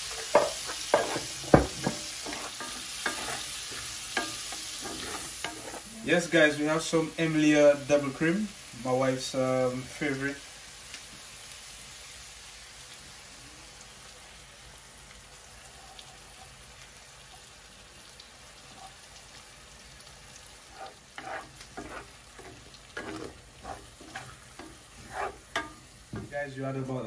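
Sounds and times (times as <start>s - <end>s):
wooden spoon stirring and scraping: 0.0s - 5.9s, 20.6s - 26.3s
onions sizzling in a skillet: 0.0s - 27.0s.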